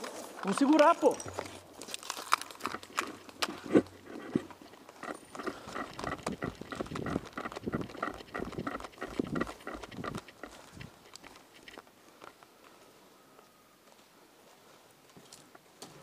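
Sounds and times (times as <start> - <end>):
footsteps crunching on rubble: 0.0 - 12.4
gear rattling: 0.5 - 11.8.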